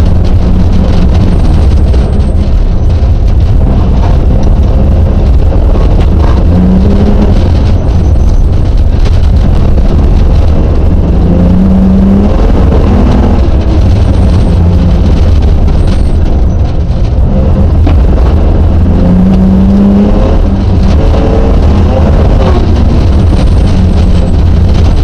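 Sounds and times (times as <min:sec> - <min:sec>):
rally car engine accelerating: 0:00.0 - 0:25.0.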